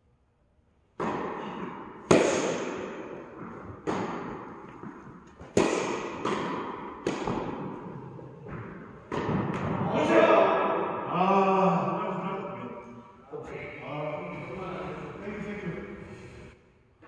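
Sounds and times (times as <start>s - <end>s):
tennis ball racket hits echoing: 0.9s - 11.2s.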